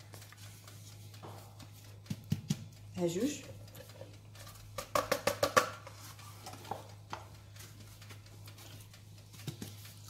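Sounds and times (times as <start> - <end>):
pot tapping against plastic jar: 3.8 - 7.3.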